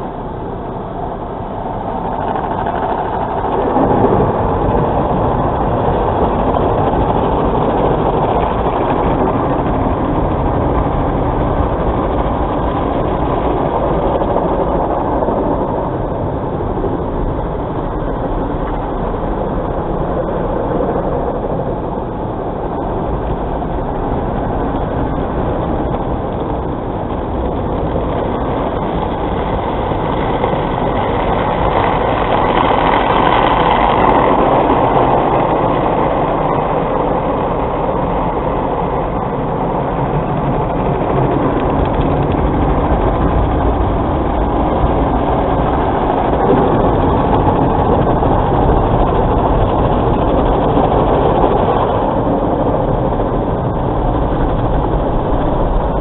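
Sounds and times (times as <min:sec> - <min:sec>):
car wash machinery running: 0:00.0 - 0:56.0
water spraying on car: 0:24.1 - 0:53.8.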